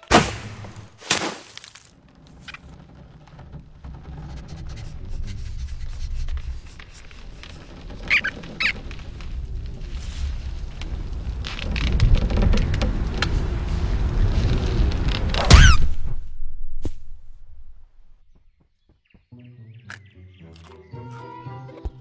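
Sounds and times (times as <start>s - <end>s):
low rumble: 2.0s - 18.5s
short high squeaks: 4.3s - 9.4s, 15.4s - 16.0s.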